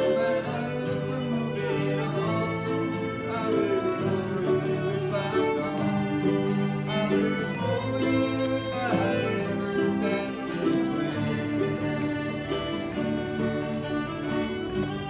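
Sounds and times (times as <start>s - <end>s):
folk ensemble playing: 0.0s - 15.0s.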